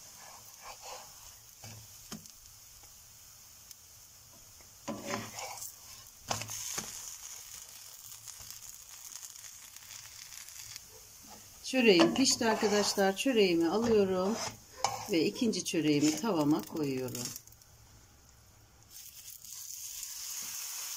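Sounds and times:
wooden spatula scraping: 0:00.0 - 0:01.8, 0:04.9 - 0:07.0, 0:11.2 - 0:17.4
flatbread sizzling in a pan: 0:00.0 - 0:20.9.

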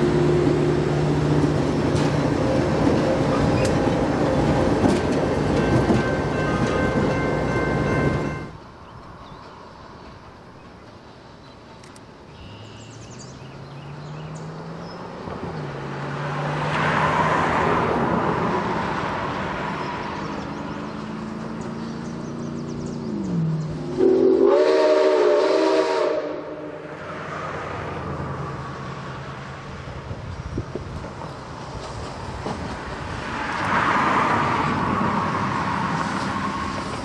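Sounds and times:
steam locomotive exhaust and running: 0:00.0 - 0:08.8, 0:23.3 - 0:26.8
steam whistle blast: 0:24.0 - 0:26.8.

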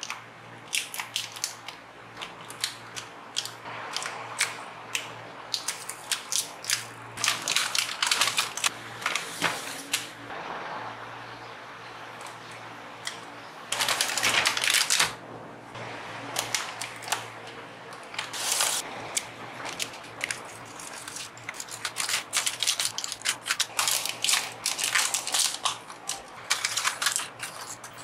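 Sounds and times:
plastic packaging crinkling: 0:05.5 - 0:10.1, 0:13.7 - 0:15.2, 0:18.0 - 0:18.8, 0:19.6 - 0:28.0.

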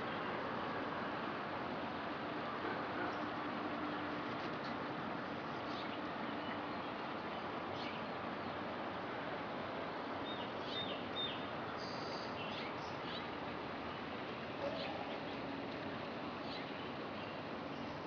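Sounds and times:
road traffic noise: 0:00.0 - 0:18.0.

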